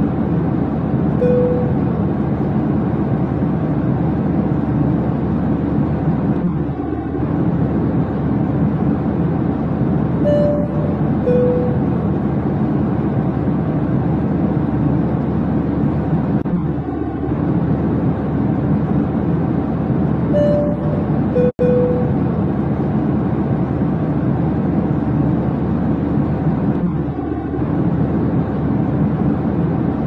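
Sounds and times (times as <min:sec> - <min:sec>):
airliner cabin rumble and hiss: 0:00.0 - 0:30.0
two-note cabin tone: 0:01.2 - 0:02.0, 0:10.2 - 0:12.0, 0:20.3 - 0:22.3.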